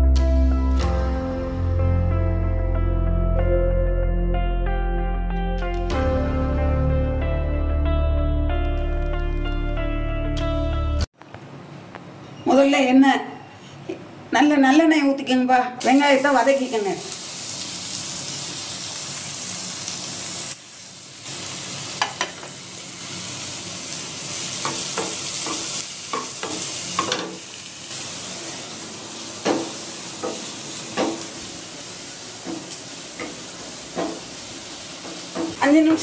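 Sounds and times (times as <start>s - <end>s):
onions sizzling in a pan: 15.8s - 36.0s.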